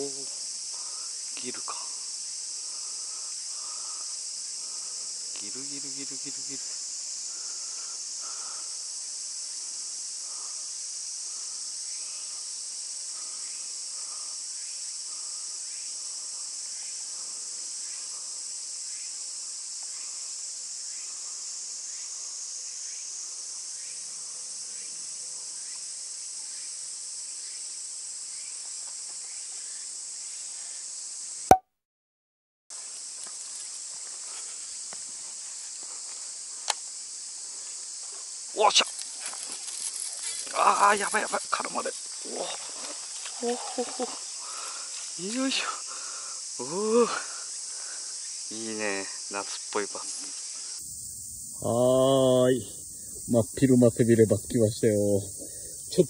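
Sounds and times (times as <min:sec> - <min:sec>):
cicadas droning: 0:00.0 - 0:31.5, 0:32.7 - 0:56.0.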